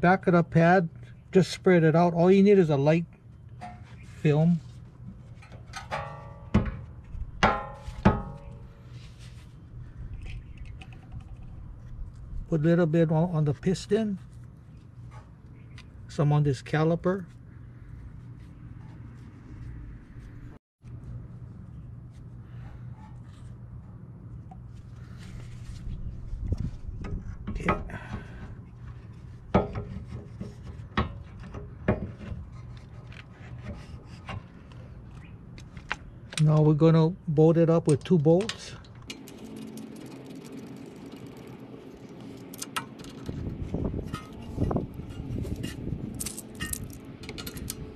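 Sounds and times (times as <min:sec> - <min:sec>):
brake caliper scraping: 0:38.5 - 0:47.9
metal tools clinking: 0:44.1 - 0:47.9.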